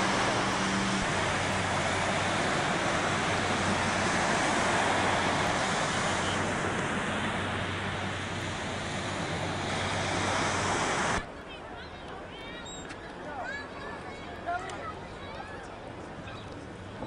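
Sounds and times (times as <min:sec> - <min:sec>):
surf washing onto beach: 0:00.0 - 0:11.3.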